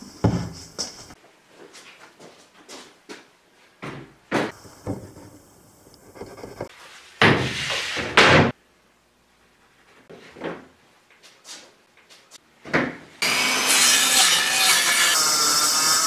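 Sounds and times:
circular saw cutting plywood: 13.2 - 16.0.

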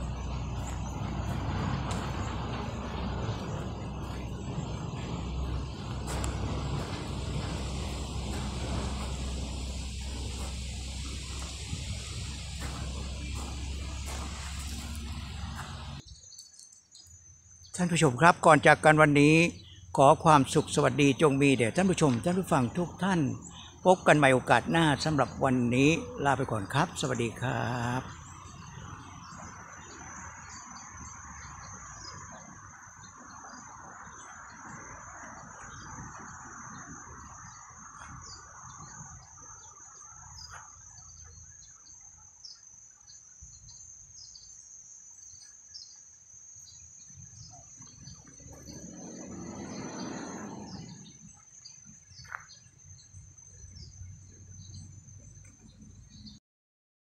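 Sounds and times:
low outdoor rumble: 0.0 - 16.0, 47.3 - 51.7
insects droning: 0.0 - 56.4.

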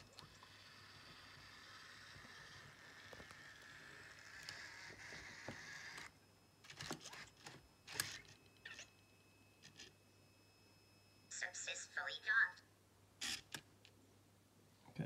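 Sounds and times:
small robot motors whirring: 0.4 - 6.1, 6.7 - 8.9.

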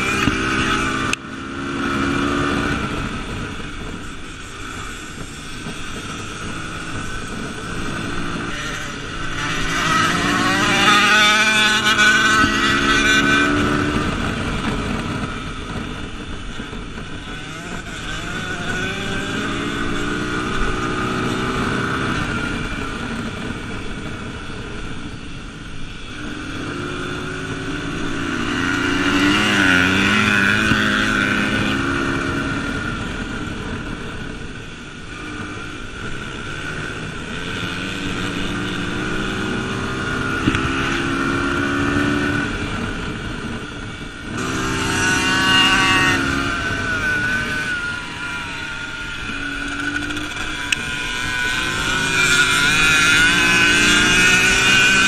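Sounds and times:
dirt bike engine revving: 0.0 - 23.8, 25.9 - 33.7, 34.6 - 55.0.

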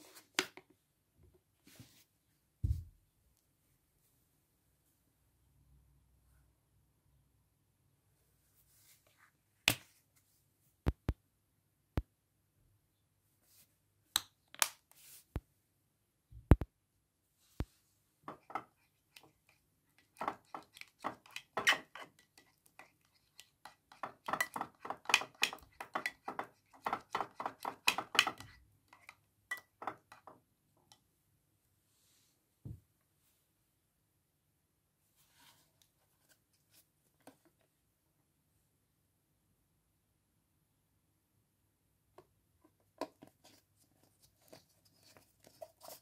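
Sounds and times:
spoon stirring sticky gel: 18.3 - 31.0.

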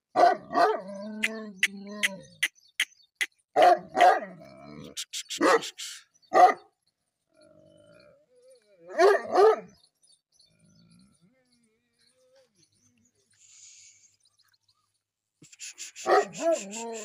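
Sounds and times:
dog barking deeply: 0.2 - 2.2, 3.6 - 5.8, 8.9 - 9.7, 16.0 - 16.6.

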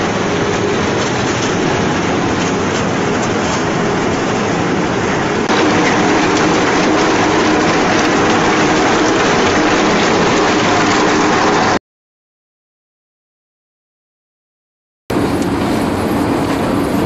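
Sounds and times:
log shredder breaking up logs: 5.5 - 11.8.

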